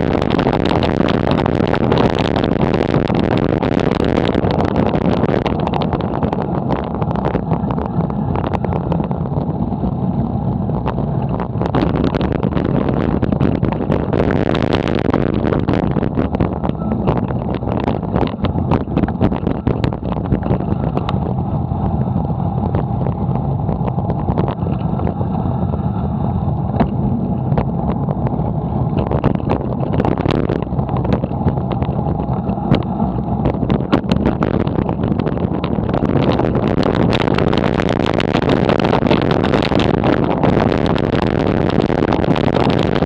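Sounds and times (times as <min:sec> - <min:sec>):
road and wind noise: 0:00.0 - 0:43.0
bike rattles and knocks: 0:10.8 - 0:25.4, 0:26.6 - 0:43.0.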